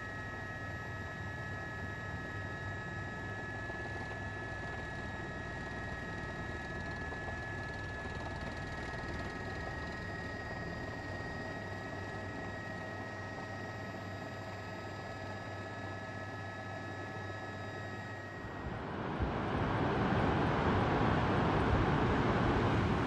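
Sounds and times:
background hiss and hum: 0:16.2 - 0:23.0.

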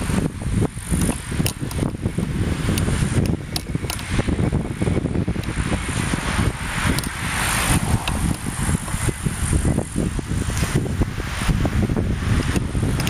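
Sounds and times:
wind buffeting microphone: 0:00.0 - 0:13.0
cars passing: 0:02.3 - 0:12.9.

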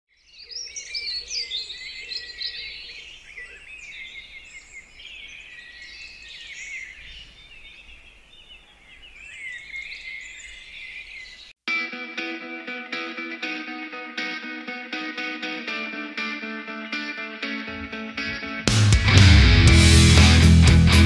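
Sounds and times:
small birds chirping and trilling: 0:00.1 - 0:11.6.

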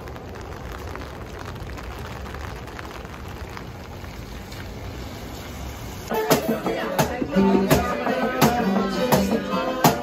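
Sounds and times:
traffic rumble: 0:00.0 - 0:06.1
rain on wet street: 0:00.0 - 0:10.0.

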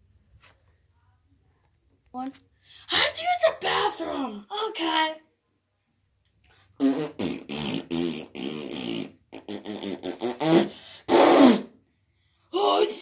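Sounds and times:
person blowing raspberries: 0:06.8 - 0:11.8.

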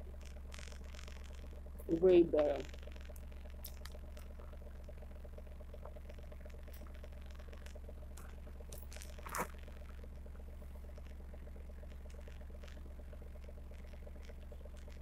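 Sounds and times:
steady low hum: 0:00.0 - 0:15.0
crunching and chewing: 0:02.6 - 0:05.1, 0:05.7 - 0:15.0.

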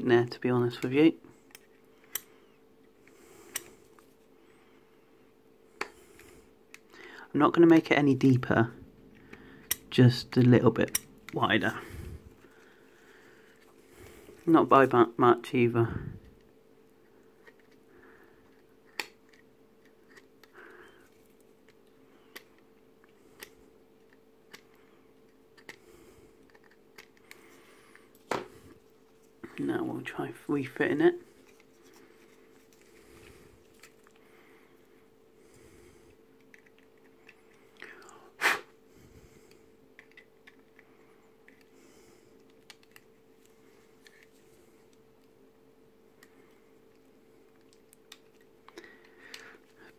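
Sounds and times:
faint steady hum: 0:00.0 - 0:49.9
plastic parts clicking and tapping: 0:39.9 - 0:40.8.

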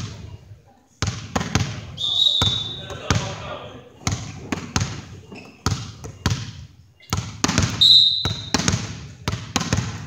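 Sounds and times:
volleyball bouncing on wooden floor: 0:01.0 - 0:03.4, 0:04.0 - 0:10.0
referee's whistle blast: 0:02.0 - 0:02.9, 0:07.7 - 0:08.6.

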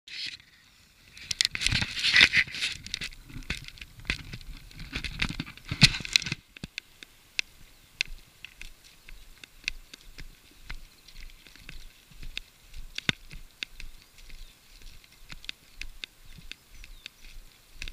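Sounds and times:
straw crackling underfoot: 0:00.1 - 0:17.9.

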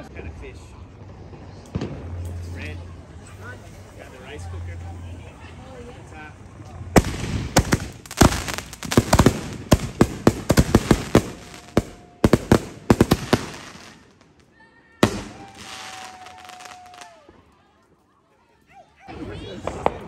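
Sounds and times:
firework bangs: 0:07.0 - 0:14.4, 0:15.0 - 0:17.2.

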